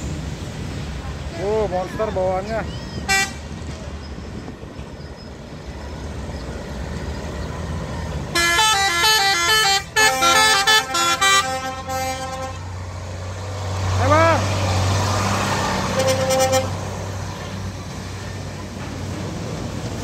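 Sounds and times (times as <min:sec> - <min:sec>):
diesel engine rumbling: 0:00.0 - 0:20.0
musical horn playing a tune: 0:08.3 - 0:12.8, 0:15.9 - 0:16.8.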